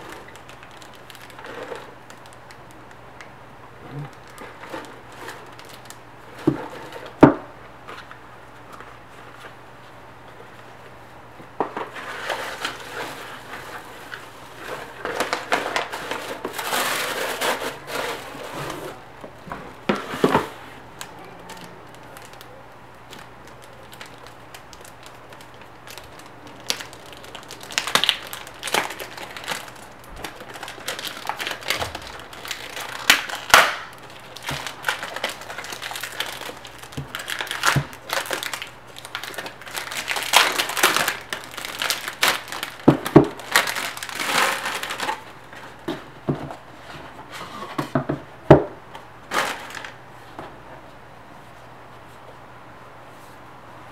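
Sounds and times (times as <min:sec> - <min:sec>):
hands rustling shredded paper: 0:00.0 - 0:03.0, 0:04.1 - 0:07.2, 0:11.8 - 0:19.0, 0:20.0 - 0:45.9, 0:49.2 - 0:50.0
plastic bag handled: 0:00.0 - 0:03.0, 0:04.0 - 0:07.2, 0:11.7 - 0:47.8, 0:49.2 - 0:50.0.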